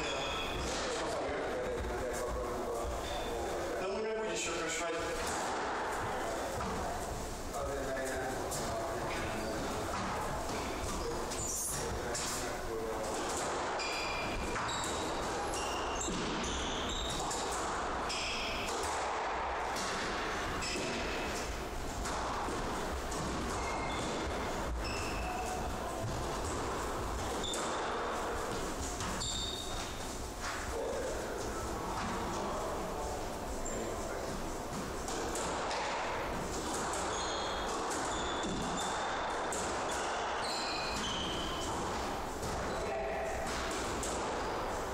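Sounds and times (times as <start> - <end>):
shoes squeaking on wooden floor: 0.0 - 1.0, 6.2 - 18.7, 20.2 - 43.6
squash ball smacking: 13.1 - 30.6.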